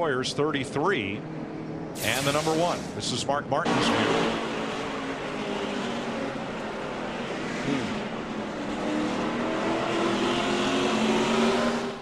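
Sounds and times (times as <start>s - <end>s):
race car engine running hard: 3.6s - 12.0s.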